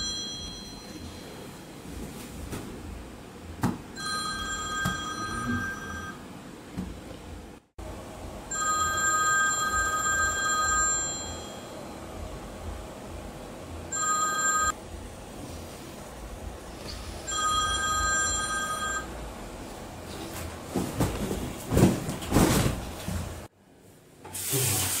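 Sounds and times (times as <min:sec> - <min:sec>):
telephone ringing: 0:04.0 - 0:06.2, 0:08.5 - 0:11.8, 0:13.9 - 0:14.8, 0:17.3 - 0:19.1.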